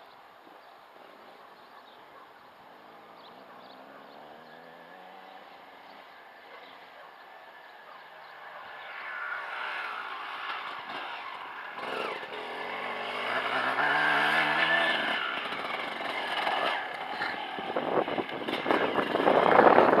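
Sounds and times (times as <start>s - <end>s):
dirt bike engine revving: 2.8s - 6.0s, 8.6s - 20.0s.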